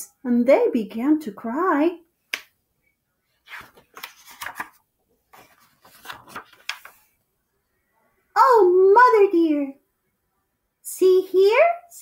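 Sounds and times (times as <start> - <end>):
book pages rustling: 3.3 - 7.2.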